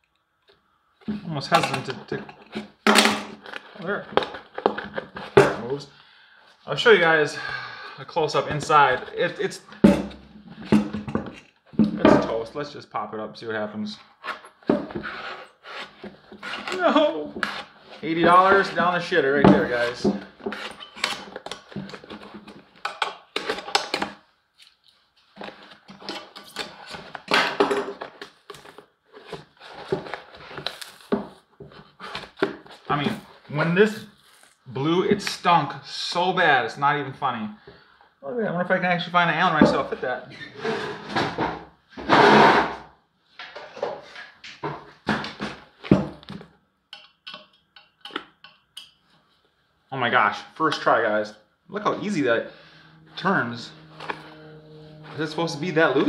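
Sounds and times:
hands scraping subwoofer cone: 0:16.4 - 0:20.4, 0:51.7 - 0:56.0.

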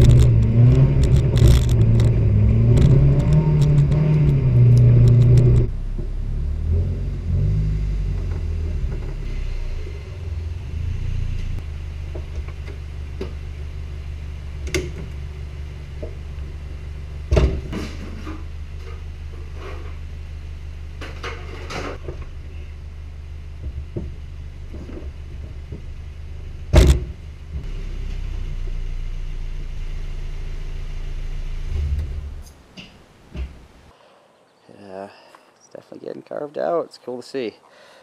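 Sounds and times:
car engine idling: 0:00.0 - 0:21.1.

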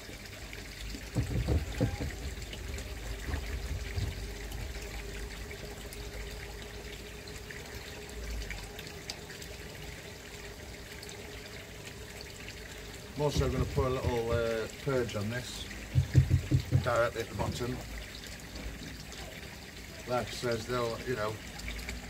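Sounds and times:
faint steady hum: 0:00.0 - 0:22.0
water trickling into a pond: 0:00.0 - 0:22.0
low thumps: 0:01.0 - 0:04.8, 0:13.3 - 0:14.6, 0:15.8 - 0:17.8.

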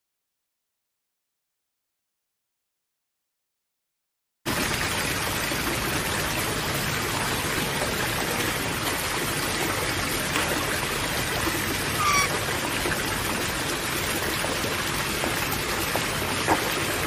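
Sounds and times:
steady rush like running water: 0:04.5 - 0:17.0
short bird call: 0:12.0 - 0:12.4.

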